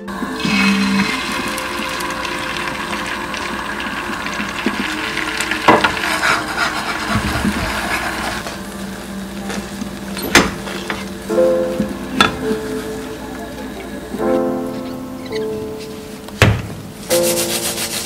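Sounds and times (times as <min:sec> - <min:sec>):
egg sizzling in a pan: 0:00.0 - 0:13.8
wooden spatula scraping a pan: 0:05.3 - 0:08.6.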